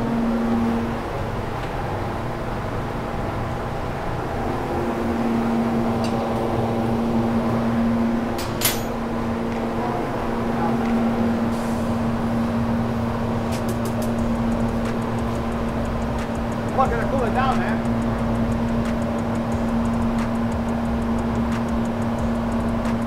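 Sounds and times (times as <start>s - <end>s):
machine hum: 0.0s - 23.0s
sharp click: 13.5s - 14.2s.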